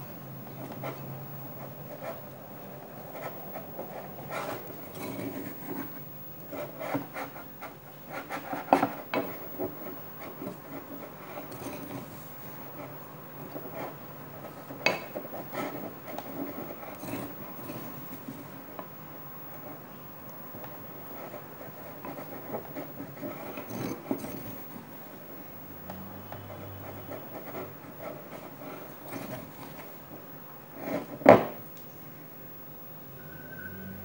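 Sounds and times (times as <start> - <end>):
dough rubbing and scraping: 0.5 - 18.6, 21.0 - 25.2, 26.4 - 30.0.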